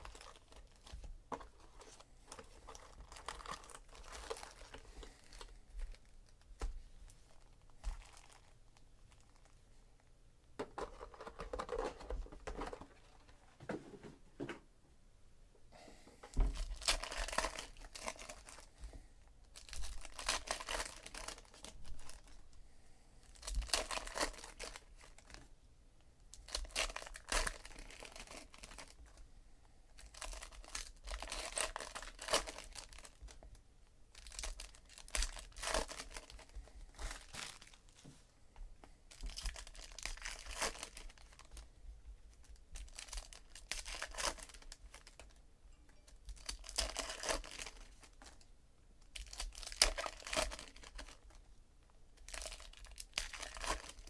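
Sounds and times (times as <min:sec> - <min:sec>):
foil wrappers tearing and crinkling: 0:00.0 - 0:05.5, 0:16.6 - 0:18.7, 0:19.6 - 0:22.4, 0:23.2 - 0:25.4, 0:26.4 - 0:29.0, 0:30.0 - 0:33.4, 0:34.1 - 0:37.8, 0:39.1 - 0:41.6, 0:42.8 - 0:45.4, 0:46.3 - 0:48.4, 0:49.2 - 0:51.4, 0:52.2 - 0:54.0.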